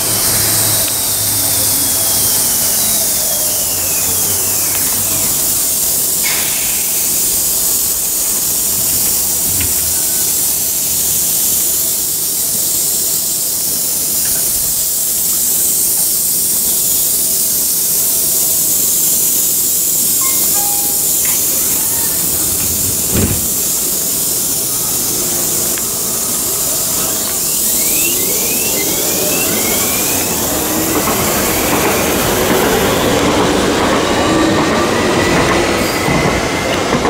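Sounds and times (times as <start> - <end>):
electric motors whining: 0.0 - 10.1, 20.2 - 34.2
metro train braking to a stop: 0.0 - 37.0
steady hiss: 0.0 - 37.0.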